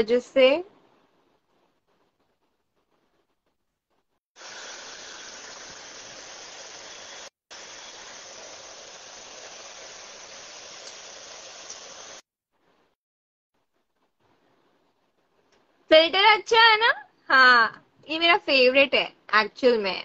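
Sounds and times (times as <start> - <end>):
line noise hiss: 0.1 - 13.0.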